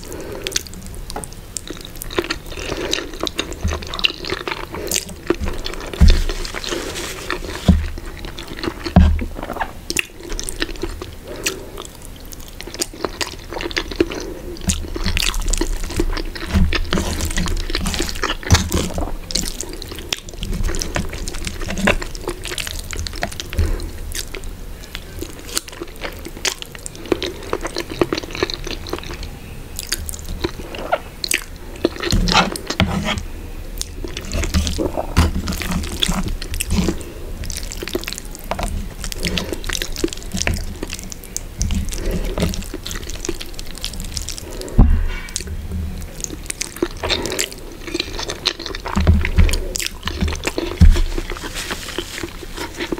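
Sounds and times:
dull thumps: 5.4 - 8.1.

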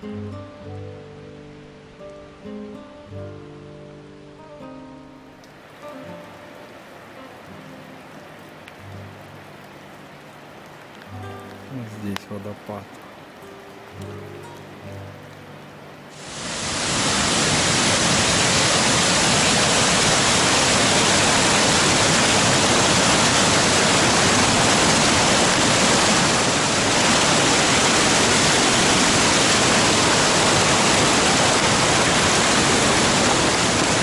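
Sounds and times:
waterfall rushing over rocks: 3.5 - 34.0.

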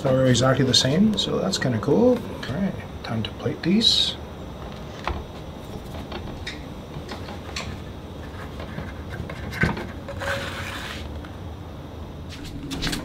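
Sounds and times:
spatula scraping: 10.1 - 11.1.

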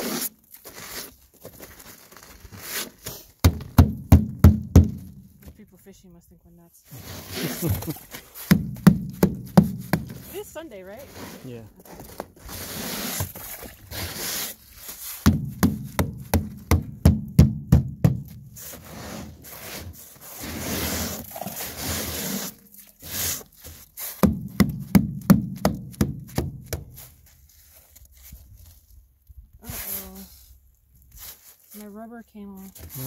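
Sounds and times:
tool scraping ice: 0.0 - 3.4, 6.9 - 8.7, 9.7 - 15.9, 18.6 - 24.4, 32.6 - 33.0.

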